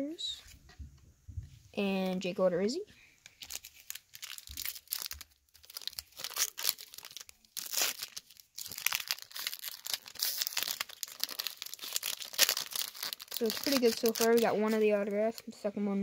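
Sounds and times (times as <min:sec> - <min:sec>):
card pack wrapper crinkling: 0:03.2 - 0:15.5.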